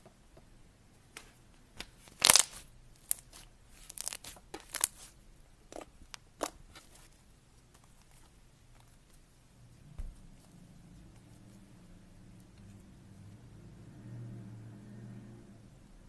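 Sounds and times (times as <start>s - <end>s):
slime squished and stretched: 1.8s - 7.2s.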